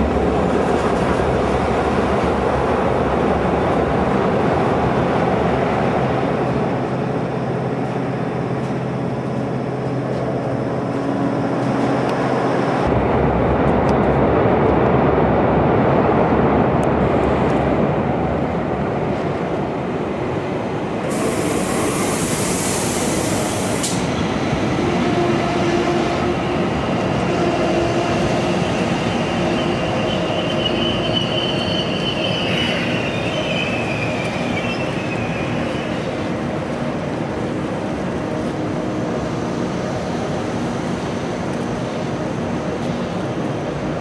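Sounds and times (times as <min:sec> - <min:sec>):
train rumbling: 0:00.0 - 0:44.0
loud hiss: 0:21.1 - 0:24.1
train wheel squeal: 0:27.4 - 0:36.3.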